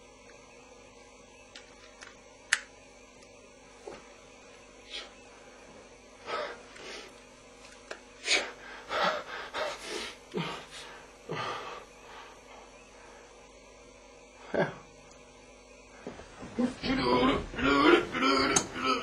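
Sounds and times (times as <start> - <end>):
man gasping and snorting: 8.2 - 12.4.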